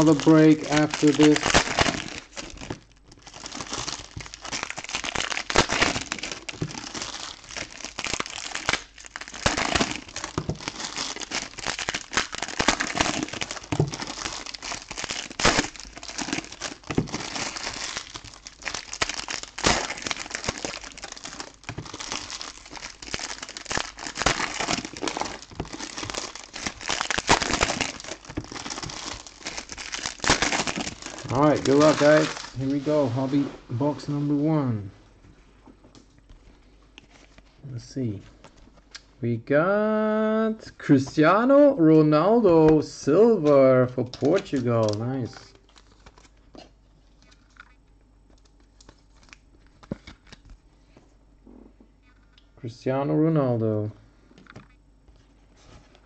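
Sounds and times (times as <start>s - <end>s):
foil wrappers tearing: 0.0s - 32.9s
sharp foil crackles: 0.0s - 32.9s, 44.2s - 46.4s
foil wrappers crinkling: 0.0s - 33.4s, 44.0s - 50.6s.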